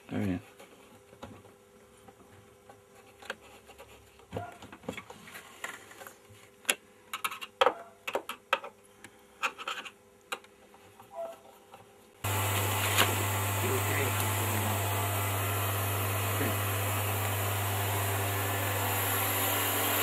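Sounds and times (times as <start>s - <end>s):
loud steady hum: 12.2s - 20.0s.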